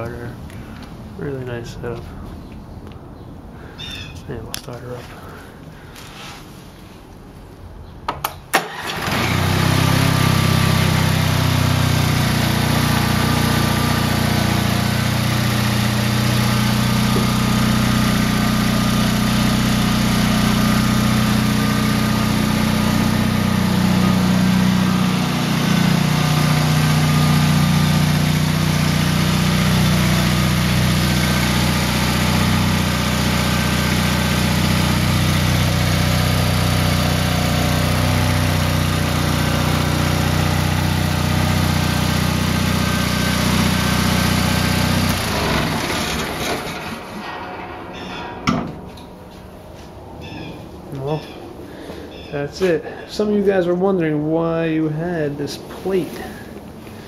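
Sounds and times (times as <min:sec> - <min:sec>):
lawn tractor engine running: 0:08.5 - 0:51.1.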